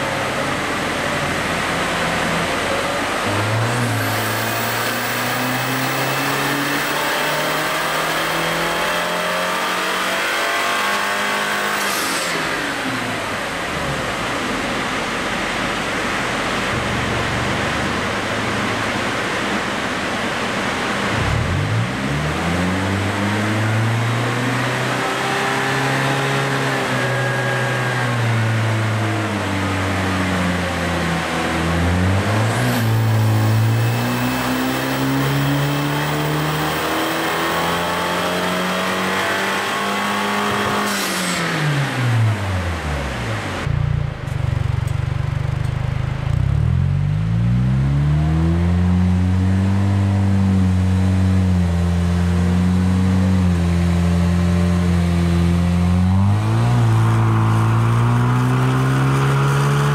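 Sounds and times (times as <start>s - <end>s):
turbocharged engine revving under load: 0.0s - 59.9s.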